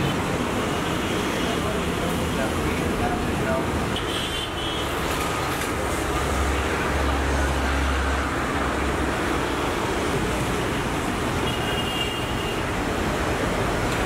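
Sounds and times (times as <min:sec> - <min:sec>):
road traffic noise: 0:00.0 - 0:14.0.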